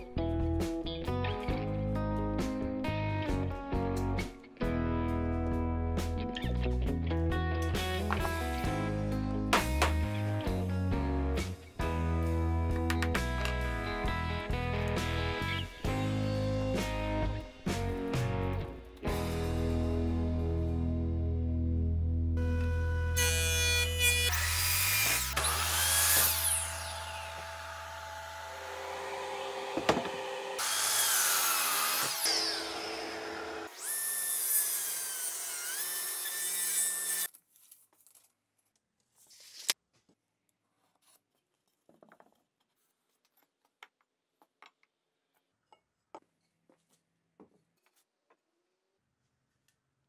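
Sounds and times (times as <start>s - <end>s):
table saw cutting: 23.1s - 37.3s
miter saw crosscutting wood: 23.2s - 37.3s.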